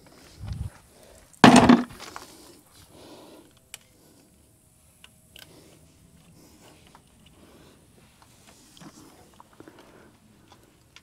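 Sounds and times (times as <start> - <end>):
loud clatter: 1.4 - 1.9.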